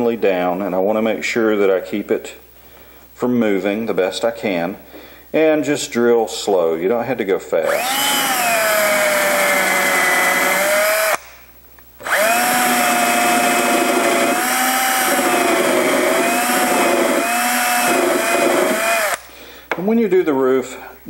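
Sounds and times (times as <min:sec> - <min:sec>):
cordless drill whining: 0:07.6 - 0:11.3, 0:12.0 - 0:19.3.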